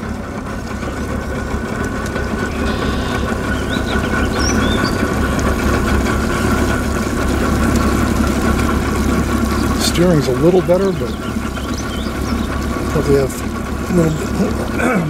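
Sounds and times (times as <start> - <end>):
outboard motor running: 0.0 - 15.0.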